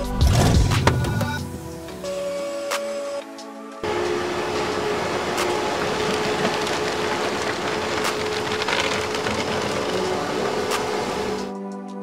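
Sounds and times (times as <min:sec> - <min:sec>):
machine whirring and hissing: 0:03.8 - 0:11.5.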